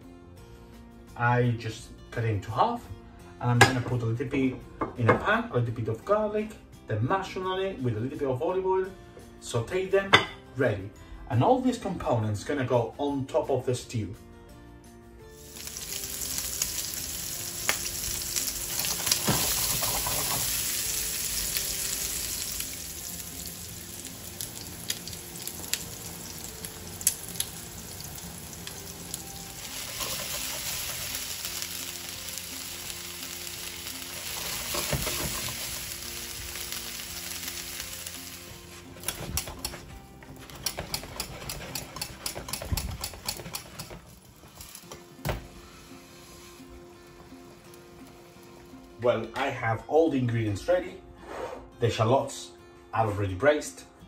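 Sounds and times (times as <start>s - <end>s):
food sizzling in a pan: 15.3s - 39.7s, 43.1s - 49.0s.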